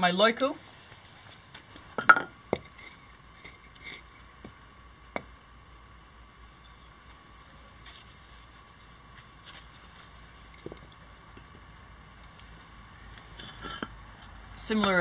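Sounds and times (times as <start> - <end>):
wood knocking on stone paving: 1.9 - 5.3.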